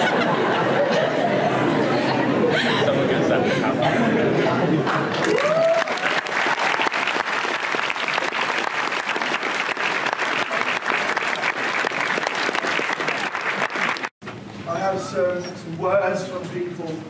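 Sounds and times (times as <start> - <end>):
audience applauding: 4.8 - 14.2.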